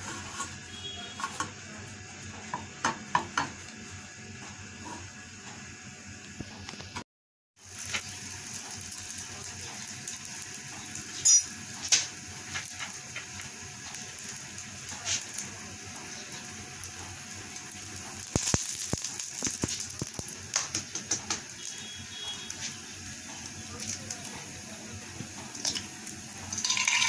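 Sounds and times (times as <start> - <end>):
bread sizzling in hot oil: 7.6 - 27.0.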